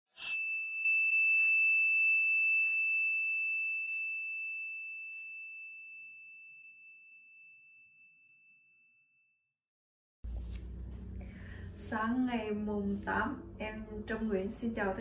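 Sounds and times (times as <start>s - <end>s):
high metallic bell chime: 0.1s - 9.2s.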